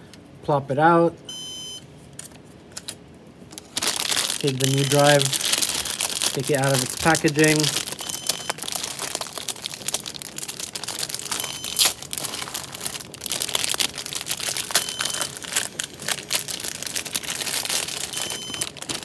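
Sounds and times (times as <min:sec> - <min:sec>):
short high alarm beep: 0:01.3 - 0:01.8, 0:18.2 - 0:18.6
plastic bag crinkling: 0:03.5 - 0:19.0.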